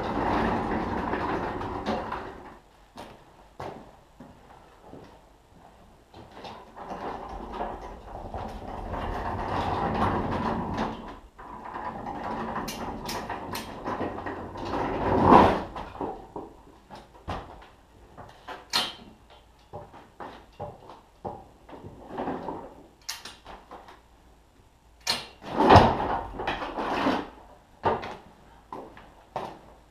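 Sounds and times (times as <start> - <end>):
pallet jack rattling rumble: 0.0 - 2.6, 6.5 - 16.4.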